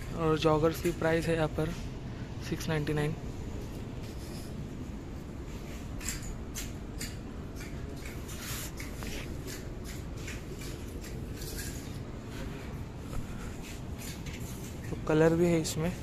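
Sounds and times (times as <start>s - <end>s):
clothes rustling on a rack: 3.4s - 16.0s.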